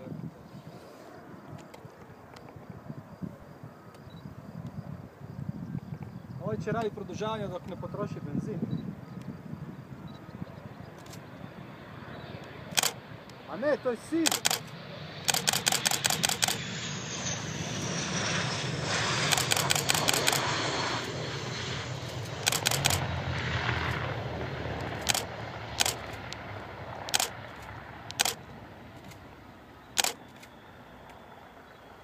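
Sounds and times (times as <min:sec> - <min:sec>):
jet engine whine and rush: 0:00.0 - 0:32.0
camera shutter clicks: 0:12.7 - 0:13.0, 0:14.2 - 0:16.6, 0:19.3 - 0:20.4, 0:22.4 - 0:23.0, 0:24.9 - 0:26.4, 0:27.0 - 0:28.4, 0:30.0 - 0:30.6.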